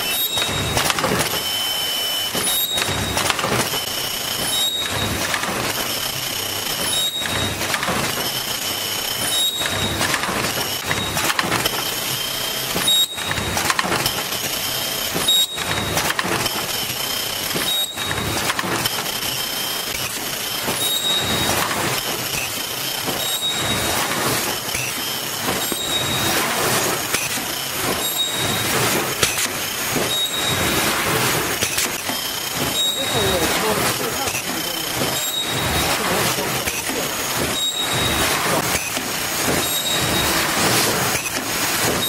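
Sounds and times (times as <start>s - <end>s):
high-pitched squeals and clicks: 0.0s - 5.9s, 6.8s - 14.2s, 17.5s - 42.0s
machine clattering: 2.3s - 12.0s, 19.9s - 42.0s.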